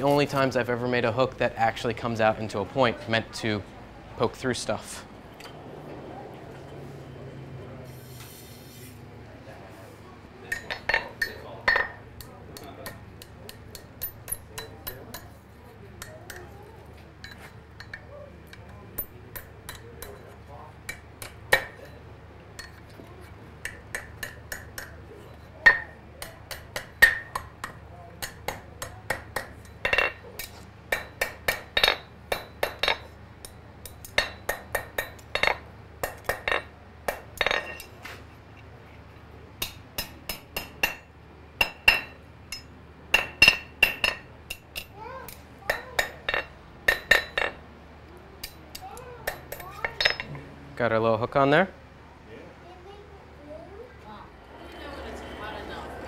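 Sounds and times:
hammer striking iron on anvil: 10.5s - 15.4s, 19.0s - 20.3s, 23.6s - 25.0s, 25.6s - 37.9s, 39.6s - 47.6s.

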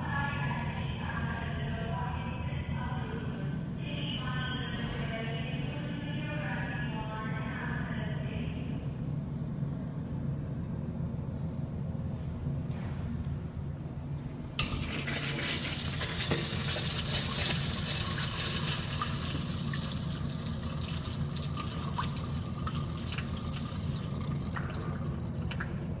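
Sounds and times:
steady low hum: 0.0s - 26.0s
urinal flushing water rushing: 14.6s - 26.0s
water dripping: 14.6s - 26.0s.

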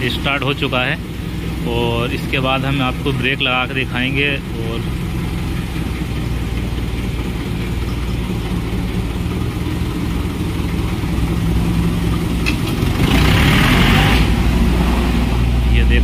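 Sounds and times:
tractor diesel engine idling: 0.0s - 16.0s.

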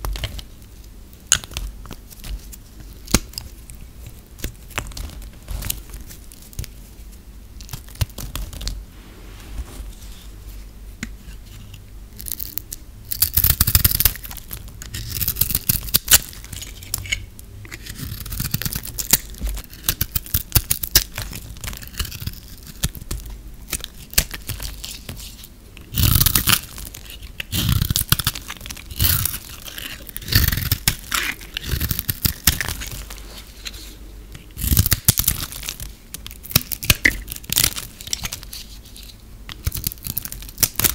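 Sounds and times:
knife cutting crackling soap: 11.0s - 40.9s.

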